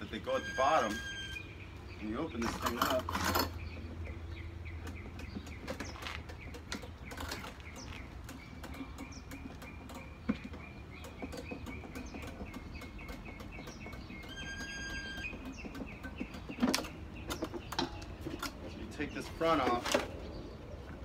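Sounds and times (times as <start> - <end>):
small bird chirping: 0.8 - 21.0.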